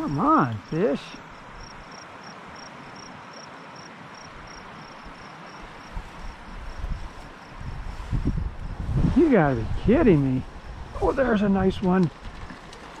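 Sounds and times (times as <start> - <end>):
creek water running over rocks: 0.0 - 7.6, 9.2 - 13.0
insect chirping: 0.0 - 8.9, 9.8 - 12.6
low thumps and rustles: 11.7 - 13.0.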